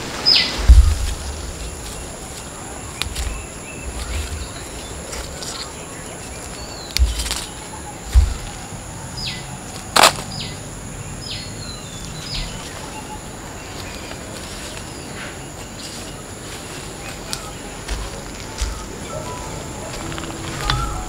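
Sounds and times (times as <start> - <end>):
bird calls: 0.0 - 21.0
insect drone: 0.0 - 21.0
low thumps: 0.6 - 2.2, 8.1 - 8.8.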